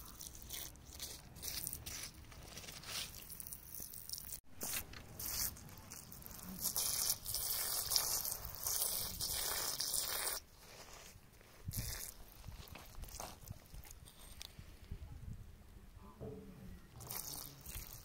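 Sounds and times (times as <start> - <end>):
water trickling onto gravel: 0.0 - 11.0, 17.0 - 18.0
fingers scraping through grit: 0.0 - 14.5.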